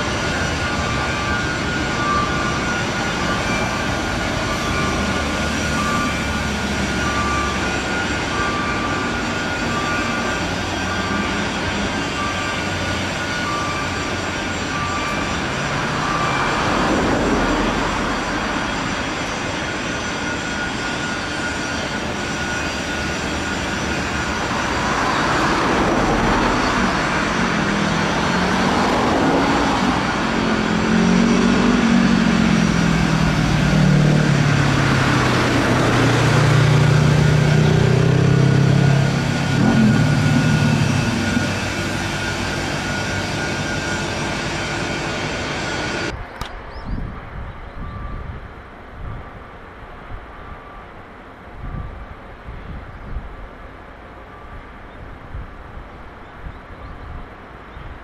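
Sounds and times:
traffic and machinery noise: 0.0s - 58.0s
engine passing by: 24.8s - 46.1s.

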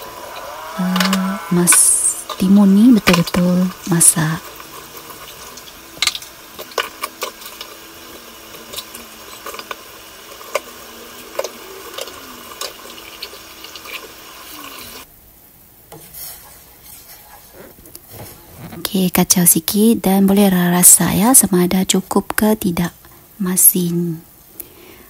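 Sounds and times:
broth boiling and bubbling: 0.0s - 15.1s.

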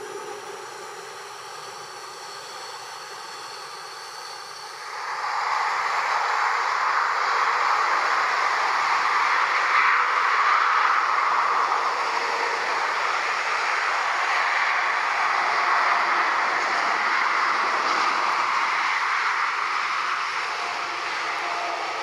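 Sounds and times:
distant motorway traffic: 0.0s - 22.0s
jet engines taxiing: 0.0s - 22.0s.

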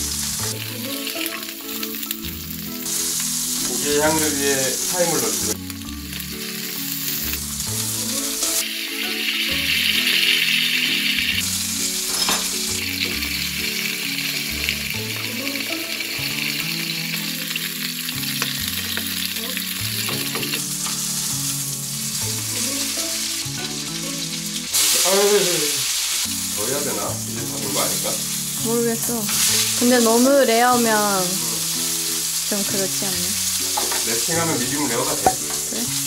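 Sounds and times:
soft background music: 0.0s - 36.0s
steak sizzling in a frying pan: 0.0s - 36.0s.

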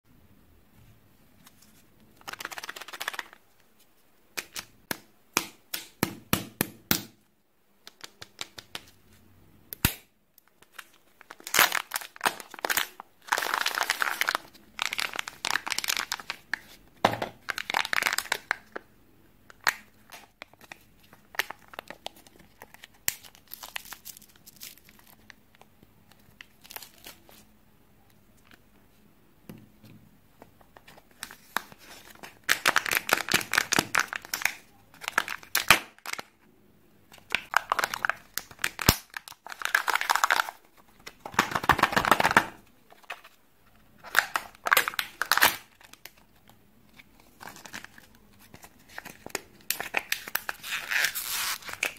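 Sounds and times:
wrapping seal tearing: 48.9s - 51.9s.

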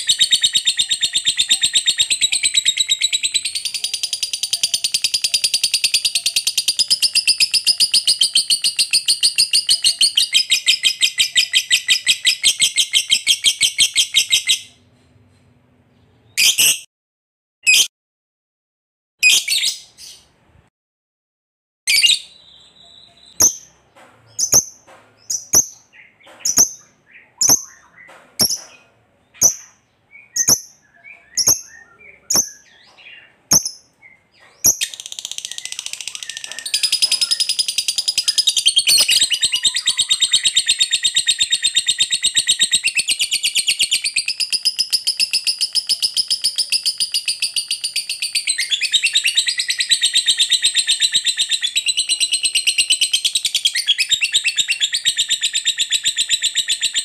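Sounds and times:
lovebird chattering trill: 0.0s - 14.6s, 29.4s - 57.0s
lovebird chirps: 0.0s - 14.8s, 21.9s - 57.0s.

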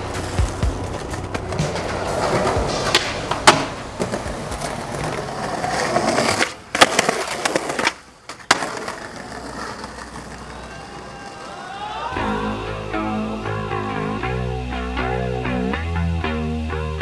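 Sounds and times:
skateboard wheels rolling on pavement: 0.0s - 12.1s
skateboard cracking on landing: 0.2s - 11.4s.

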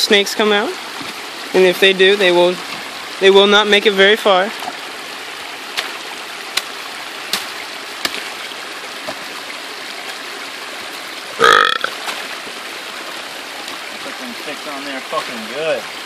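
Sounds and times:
creek water rushing: 0.0s - 16.0s
throaty vocal sound: 11.4s - 11.9s.

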